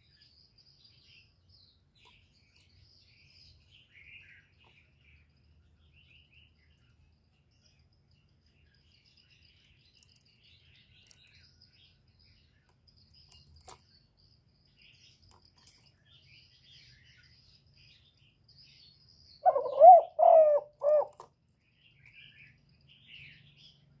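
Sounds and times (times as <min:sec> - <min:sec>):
faint high bird chirping: 0:00.0 - 0:24.0
dove cooing: 0:19.4 - 0:21.3.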